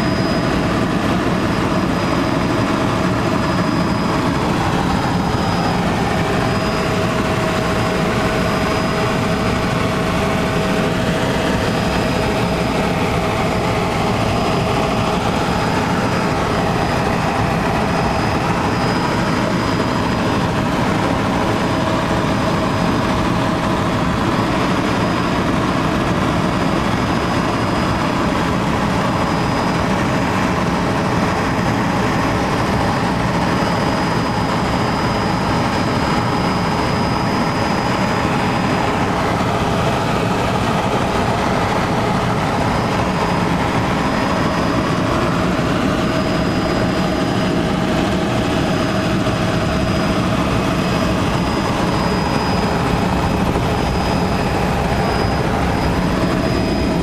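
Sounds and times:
helicopter engine and rotor drone: 0.0 - 57.0.

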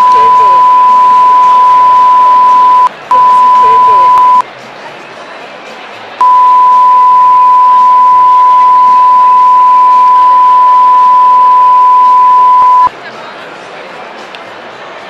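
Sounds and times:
steady pure beep tone: 0.0 - 4.4, 6.2 - 12.9.

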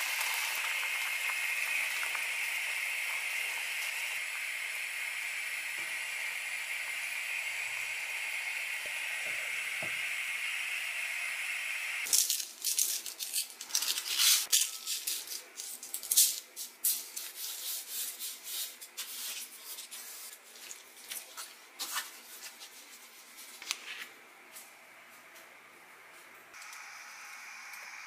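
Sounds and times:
pot boiling with hiss: 0.0 - 12.6, 26.5 - 28.0
salt and paper crackling: 12.0 - 24.0.

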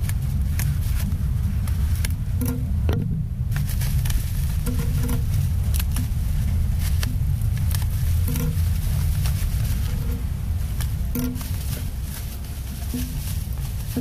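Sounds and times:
low rumble: 0.0 - 14.0
plastic bag crinkling: 3.6 - 14.0.

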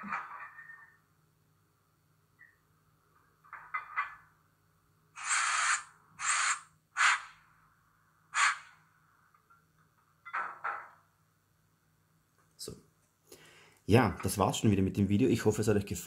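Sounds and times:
air hisses: 5.2 - 7.3, 8.4 - 8.7.

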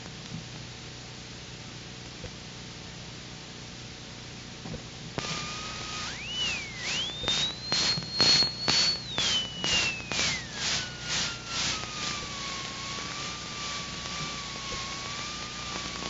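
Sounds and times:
pulsing noise: 5.2 - 16.0.

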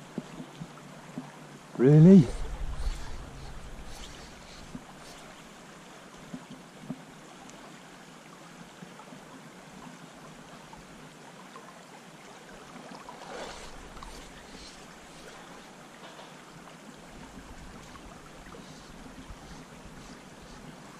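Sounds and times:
river water rushing: 12.3 - 16.0
faint ticks: 13.4 - 16.4.

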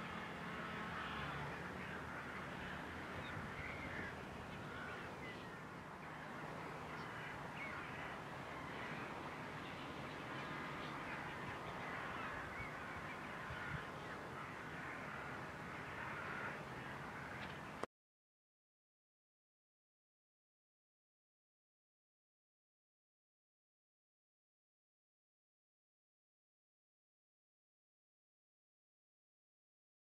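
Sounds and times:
birds chirping and cawing: 0.0 - 17.8
tractor engine drone: 0.0 - 17.8.

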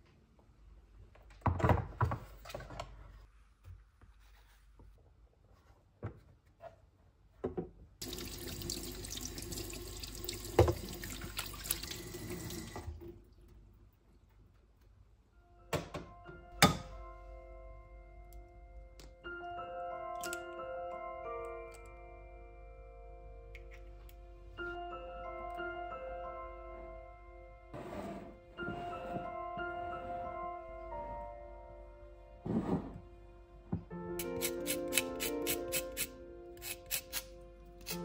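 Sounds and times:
hands washing under water: 8.0 - 12.8
tap running into sink: 8.0 - 12.8
soft clock-like music: 15.4 - 38.0.

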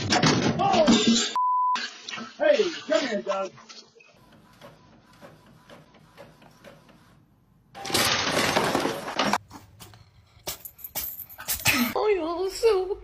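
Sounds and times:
loud clattering crash: 7.8 - 9.4.

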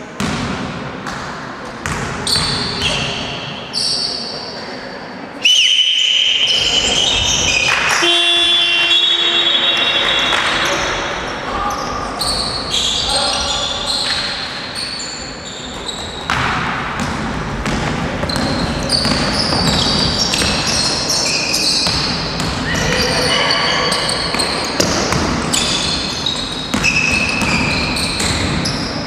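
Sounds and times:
sneakers squeaking on court floor: 1.8 - 4.4, 6.4 - 29.0
basketball bouncing: 15.8 - 20.8, 21.8 - 23.1, 24.3 - 28.8.

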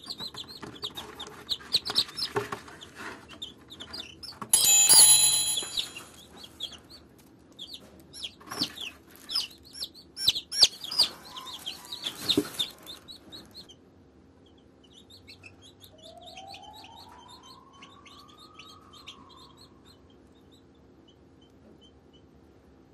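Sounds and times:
chicks peeping: 0.0 - 4.8, 5.6 - 22.4.

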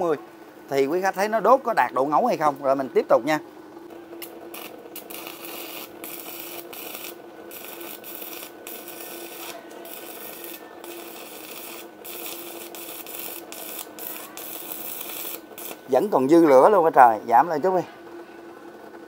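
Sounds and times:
welder hum: 0.0 - 17.8
welding arc crackling: 4.2 - 16.4.

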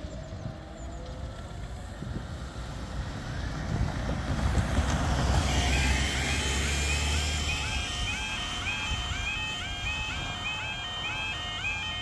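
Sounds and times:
van driving past on wet road: 0.6 - 12.0
level crossing electronic alarm: 5.4 - 12.0.

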